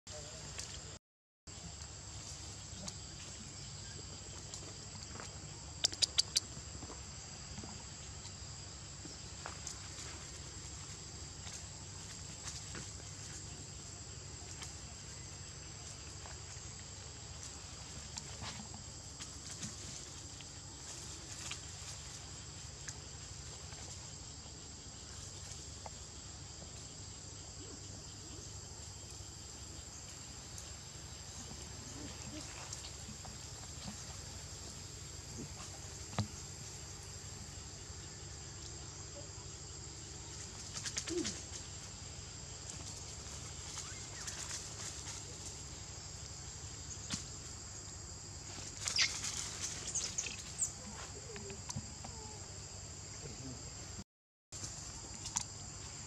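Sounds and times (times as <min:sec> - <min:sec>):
insect chorus buzzing: 0:00.1 - 0:54.0, 0:54.6 - 0:56.0
faint ticks and rustles: 0:00.2 - 0:52.4
sharp clicks: 0:05.8 - 0:06.4.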